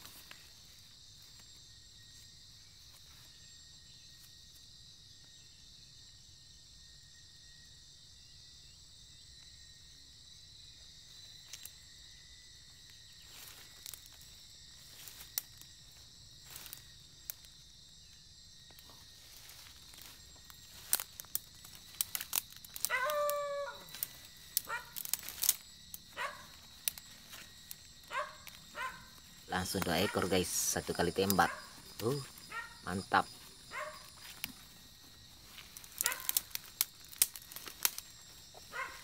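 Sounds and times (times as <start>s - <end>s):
leaves and twigs rustling: 0.0s - 4.8s, 10.9s - 39.0s
insects droning: 0.0s - 39.0s
dog yelping: 22.9s - 24.0s, 24.7s - 25.0s, 26.2s - 26.5s, 28.1s - 29.1s, 32.5s - 32.8s, 33.7s - 34.1s, 36.0s - 36.3s, 38.7s - 39.0s.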